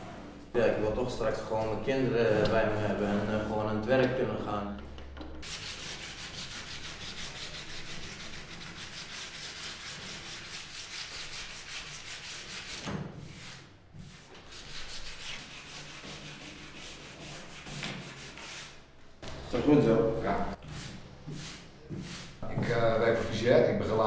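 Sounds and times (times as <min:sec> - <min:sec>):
sandpaper on wood: 0:02.0 - 0:03.6, 0:05.4 - 0:18.8, 0:20.6 - 0:22.4.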